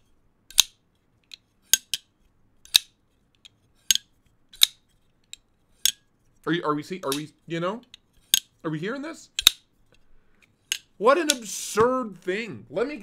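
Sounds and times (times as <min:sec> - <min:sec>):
folding knife snapping open and shut: 0:09.4 - 0:09.6.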